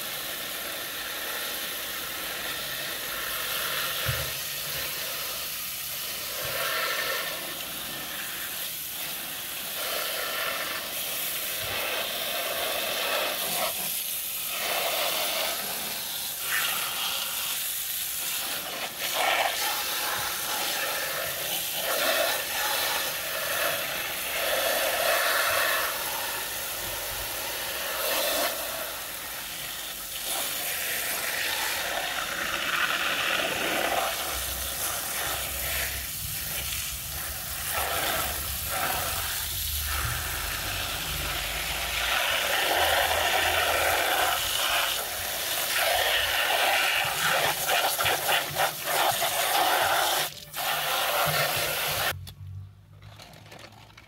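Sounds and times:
hose spray hissing and splashing: 0:00.0 - 0:52.2.

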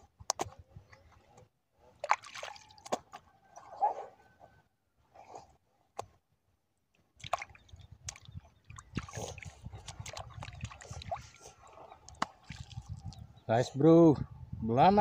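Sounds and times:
wet clicks and squelches: 0:00.2 - 0:03.2, 0:06.9 - 0:11.4, 0:12.0 - 0:13.2
water dripping and splashing: 0:02.0 - 0:03.3, 0:07.2 - 0:13.2.

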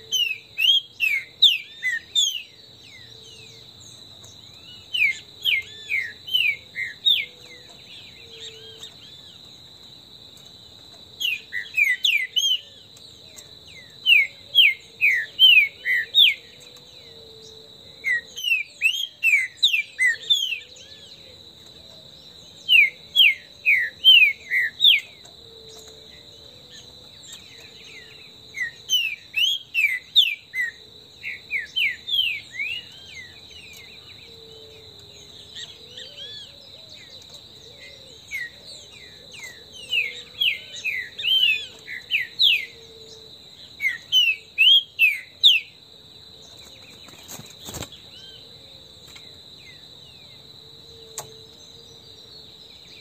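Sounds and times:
bird singing whistled notes: 0:00.0 - 0:09.3, 0:11.2 - 0:16.7, 0:17.4 - 0:21.1, 0:22.6 - 0:25.9, 0:27.3 - 0:34.6, 0:35.2 - 0:43.2, 0:43.8 - 0:45.8.

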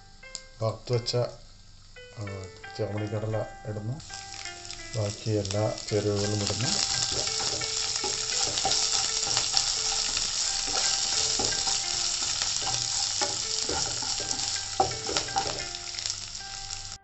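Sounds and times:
spices sizzling in hot oil: 0:04.0 - 0:17.0
spatula scraping and tapping pan: 0:05.9 - 0:16.2.

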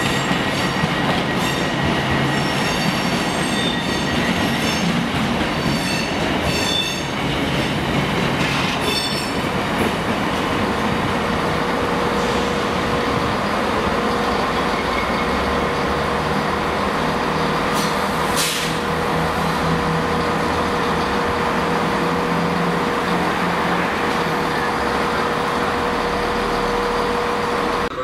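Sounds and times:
diesel train engine drone: 0:00.0 - 0:28.0
short hiss: 0:17.8 - 0:18.8.

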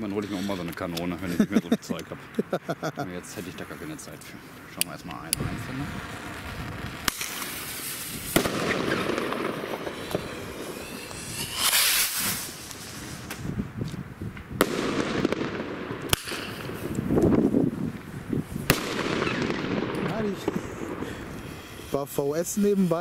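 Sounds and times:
fuse sizzling: 0:02.4 - 0:13.6
sharp firework bangs: 0:05.4 - 0:13.5, 0:14.5 - 0:17.2, 0:18.6 - 0:22.0
rocket launching whoosh: 0:05.4 - 0:13.6, 0:14.6 - 0:16.9, 0:18.6 - 0:22.0.

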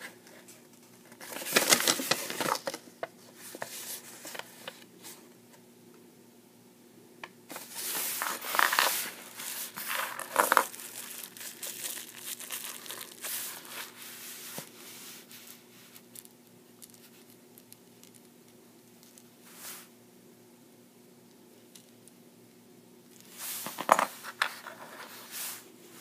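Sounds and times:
paper and plastic wrap crinkling: 0:01.0 - 0:02.9, 0:07.5 - 0:15.6.

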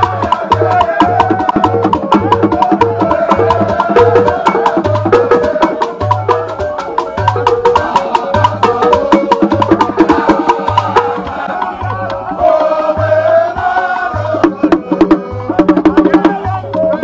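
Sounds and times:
person chanting: 0:07.8 - 0:17.0.

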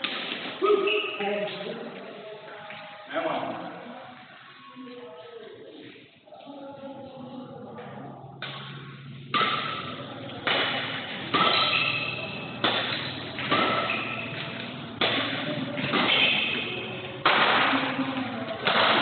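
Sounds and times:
rackets hitting shuttlecock: 0:00.0 - 0:00.6, 0:08.4 - 0:19.0.

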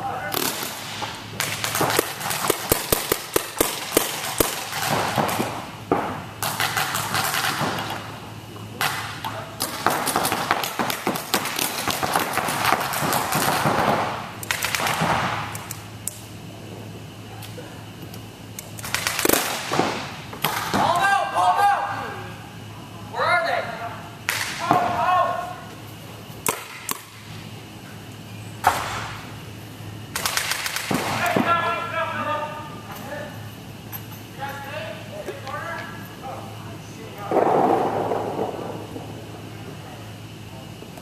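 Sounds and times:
paintball markers firing: 0:00.3 - 0:08.0, 0:09.6 - 0:15.8, 0:30.1 - 0:31.2.

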